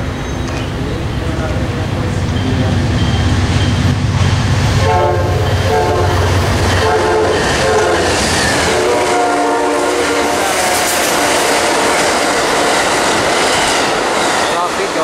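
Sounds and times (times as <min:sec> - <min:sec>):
locomotive engine rumble: 0:00.0 - 0:15.0
train cars clattering past: 0:00.0 - 0:15.0
train horn blasts: 0:04.7 - 0:12.6.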